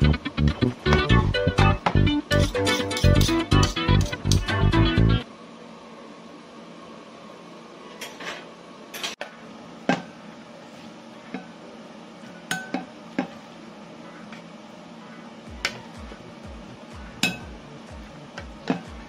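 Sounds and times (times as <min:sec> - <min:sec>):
utensil clinking against bowls: 0:02.3 - 0:04.5, 0:17.2 - 0:17.6.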